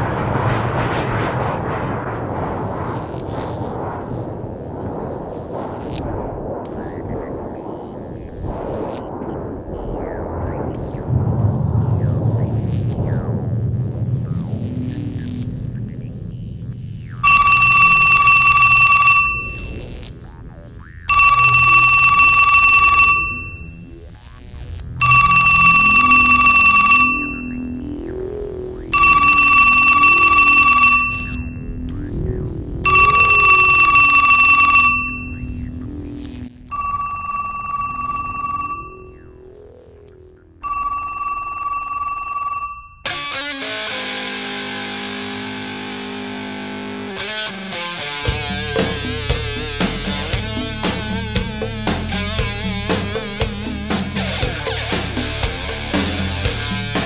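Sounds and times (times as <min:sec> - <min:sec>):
telephone ringing electronically: 0:17.2 - 0:20.0, 0:21.1 - 0:23.8, 0:25.0 - 0:27.7, 0:28.9 - 0:31.6, 0:32.8 - 0:35.5, 0:36.7 - 0:39.3, 0:40.6 - 0:43.0
background music: 0:48.2 - 0:57.0.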